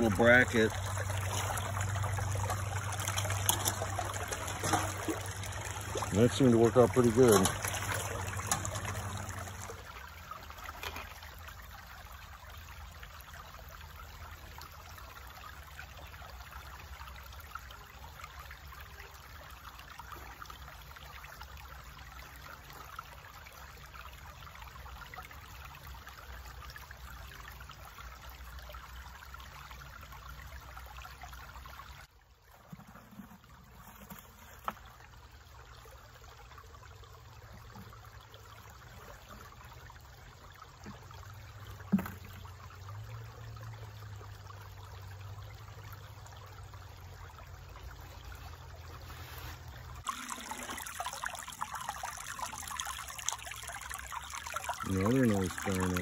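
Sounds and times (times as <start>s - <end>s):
creek water rushing: 0.0s - 17.9s, 29.2s - 56.0s.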